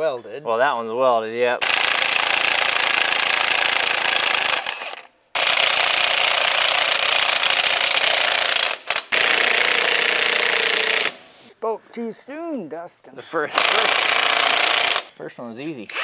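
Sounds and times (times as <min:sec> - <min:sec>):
impact wrench hammering: 0:01.6 - 0:11.2, 0:13.5 - 0:15.1.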